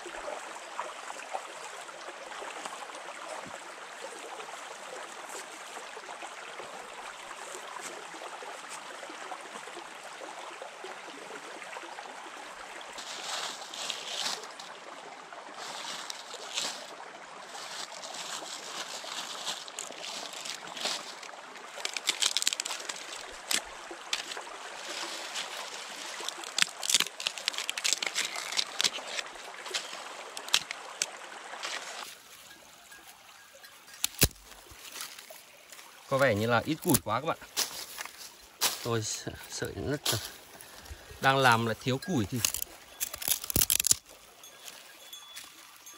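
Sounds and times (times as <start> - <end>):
stream running over stones: 0.0 - 45.9
sharp snaps and clicks: 42.3 - 44.0.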